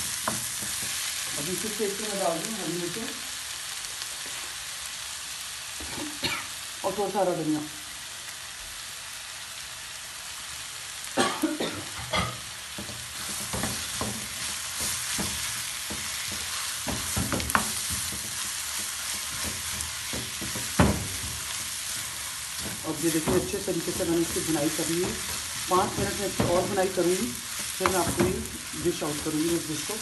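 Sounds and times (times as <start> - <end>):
food sizzling in a wok: 0.0 - 30.0
wooden spoon scraping a pan: 12.7 - 30.0.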